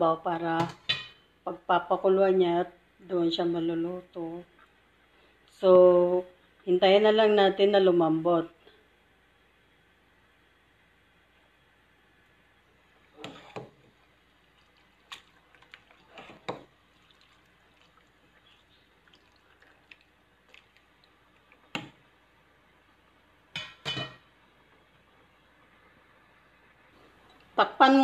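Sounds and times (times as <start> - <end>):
ladle stirring in water: 13.1 - 22.0.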